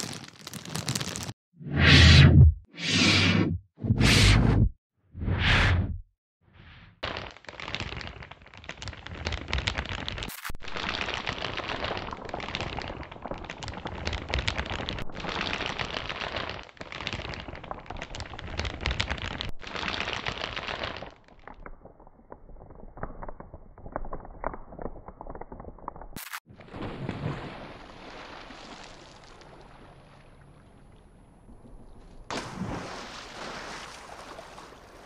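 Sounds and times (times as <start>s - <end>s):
burning paper crackling: 0.0s - 1.4s, 7.0s - 21.6s.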